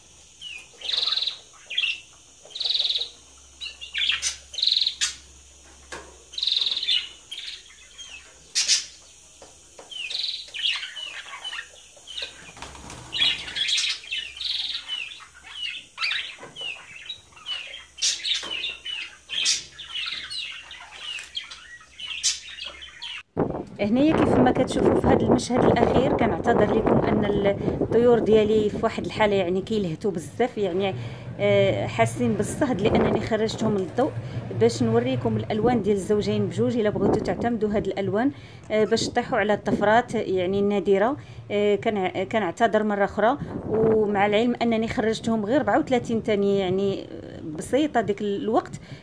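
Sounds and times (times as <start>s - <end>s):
budgerigars chirping: 0.4s - 5.3s, 6.3s - 9.2s, 9.8s - 23.3s.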